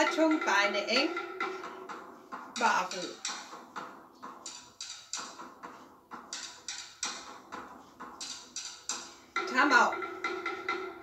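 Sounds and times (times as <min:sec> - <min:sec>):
drum music: 0:00.0 - 0:11.0.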